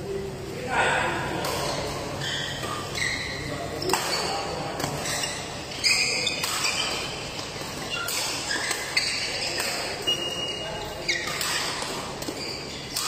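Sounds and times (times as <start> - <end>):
court shoes squeaking: 1.2 - 13.0
rackets striking shuttlecock: 3.8 - 13.0.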